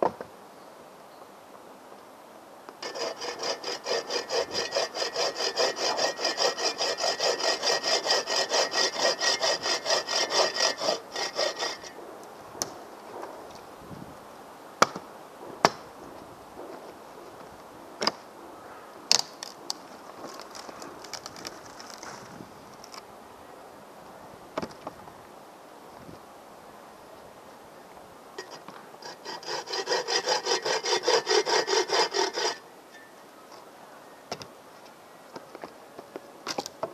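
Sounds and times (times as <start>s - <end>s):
hand saw cutting a branch: 2.8s - 12.0s, 28.4s - 32.6s.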